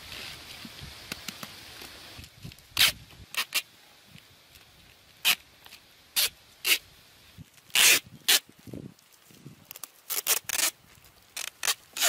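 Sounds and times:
plastic strip rasping on fruit: 0:07.7 - 0:08.4, 0:09.7 - 0:10.8, 0:11.4 - 0:12.0.

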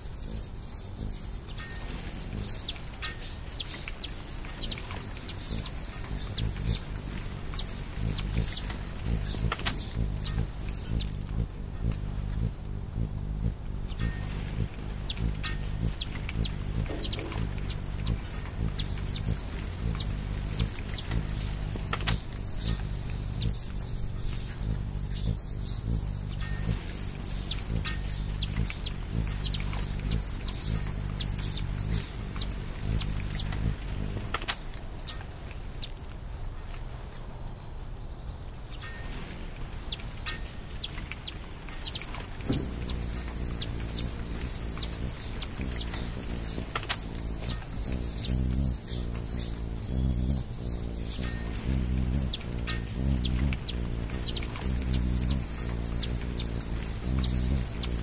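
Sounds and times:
insect trill: 0:00.0 - 0:37.2, 0:38.5 - 0:58.0.

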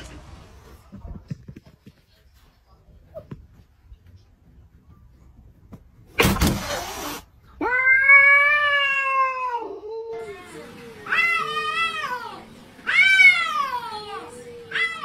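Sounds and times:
cat hissing: 0:06.2 - 0:07.3
cat yowling: 0:11.1 - 0:15.0.

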